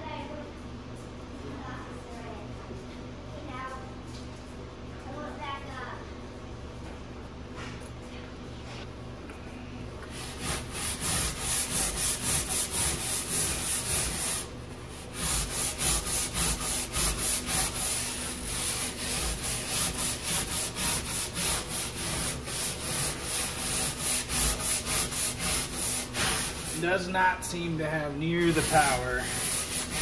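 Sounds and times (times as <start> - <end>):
stiff brush scrubbing a deck: 10.1 - 30.0.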